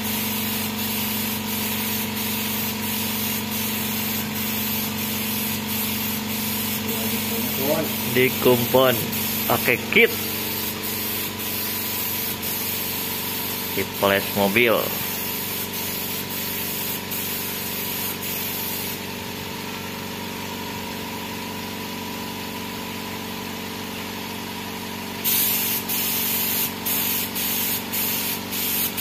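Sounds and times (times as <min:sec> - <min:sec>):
spray gun hissing: 0:00.0 - 0:19.0, 0:25.2 - 0:29.0
steady machine hum: 0:04.2 - 0:12.5.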